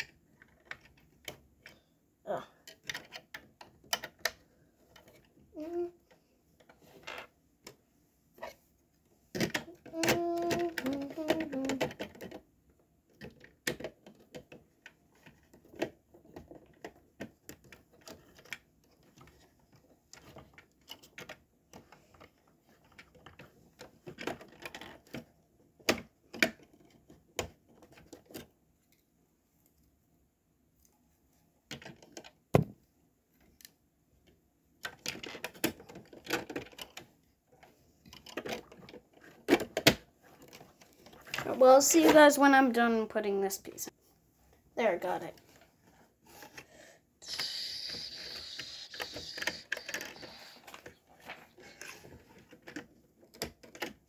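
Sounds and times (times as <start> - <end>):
plastic bricks clicking together: 47.2 - 51.0.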